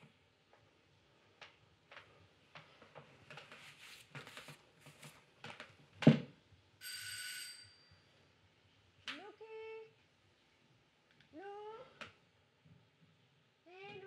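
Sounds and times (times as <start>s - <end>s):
electric doorbell ringing: 6.8s - 7.9s.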